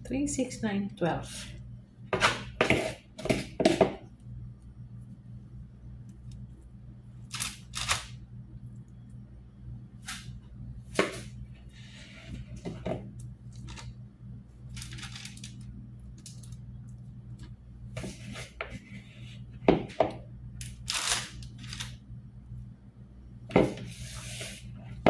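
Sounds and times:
steady low hum: 0.0 - 25.0
paper rustling: 14.7 - 15.6.

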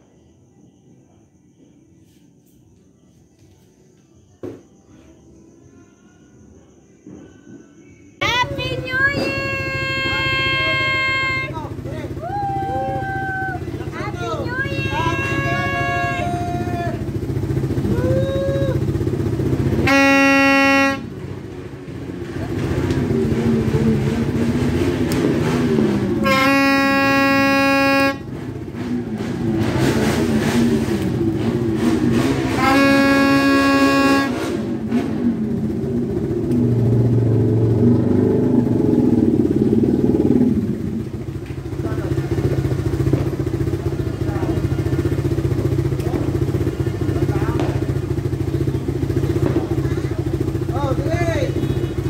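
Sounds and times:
horn blasts: 8.4 - 11.9, 14.6 - 17.9, 18.8 - 21.6, 22.4 - 30.6, 31.4 - 35.7, 50.3 - 52.0.

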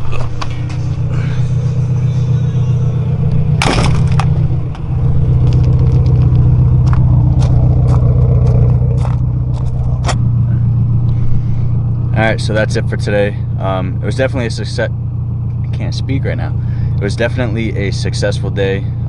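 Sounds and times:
car engine idling: 0.0 - 19.0
footsteps on gravel: 1.8 - 10.4.

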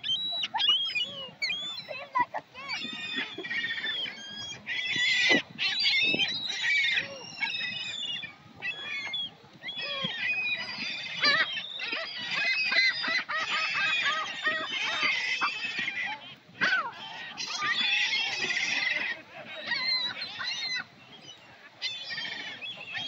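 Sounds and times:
gulls squawking: 0.0 - 23.0.

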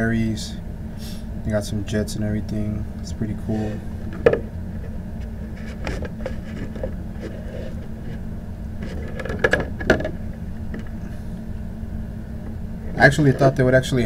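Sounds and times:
steady low hum: 0.0 - 14.0
plastic case clicks and rustles: 8.8 - 10.2.

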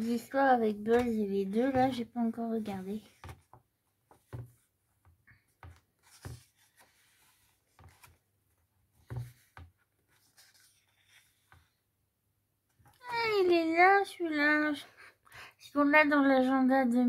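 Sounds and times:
book pages turning: 0.8 - 4.7, 5.4 - 11.8.

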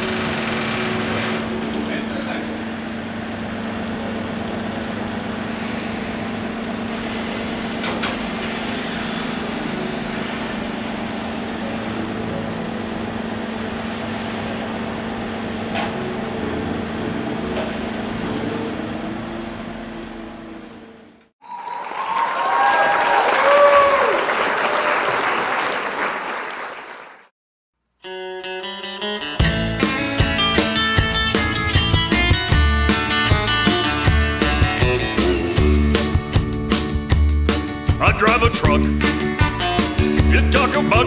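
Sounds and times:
forklift engine humming: 30.4 - 41.0.

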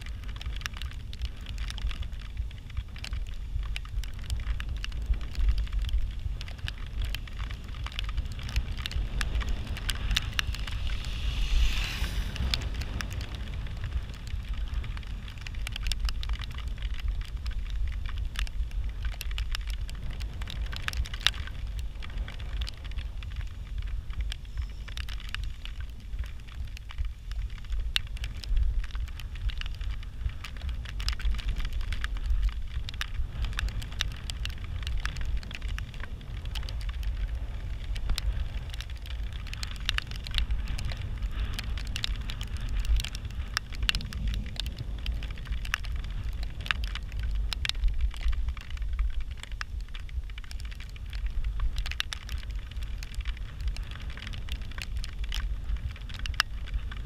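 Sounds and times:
sharp crackling ticks: 0.0 - 57.0
wind rumble on microphone: 0.0 - 57.0.

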